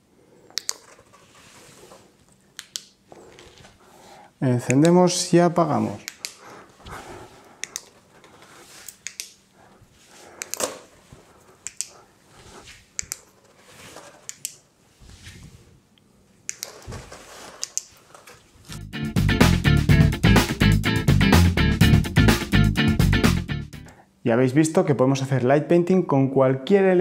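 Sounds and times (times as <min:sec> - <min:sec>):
paper rustling: 0:00.8 - 0:02.2, 0:06.4 - 0:09.0, 0:10.0 - 0:14.4, 0:16.6 - 0:18.8
sharp clicks: 0:02.6 - 0:03.0, 0:06.0 - 0:06.4, 0:08.9 - 0:09.4, 0:10.4 - 0:10.7.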